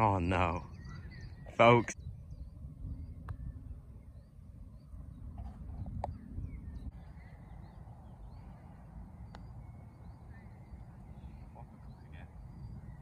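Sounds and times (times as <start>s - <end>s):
birds chirping and calling: 0.0s - 13.0s
wind rumble on microphone: 0.6s - 13.0s.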